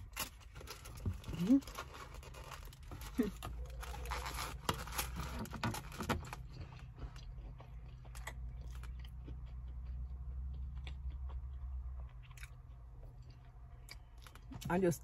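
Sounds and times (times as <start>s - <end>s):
person chewing food: 6.1s - 14.7s.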